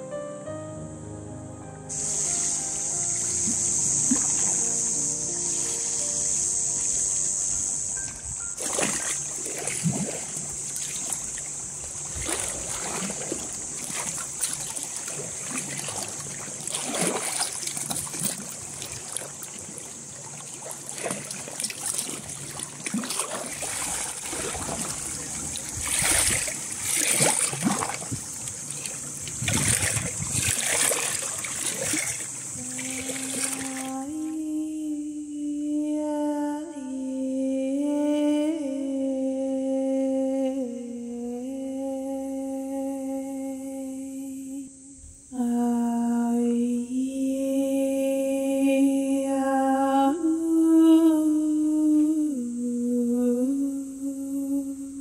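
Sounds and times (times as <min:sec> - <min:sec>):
waves splashing against rocks: 0:08.6 - 0:34.4
person humming: 0:32.6 - 0:55.0.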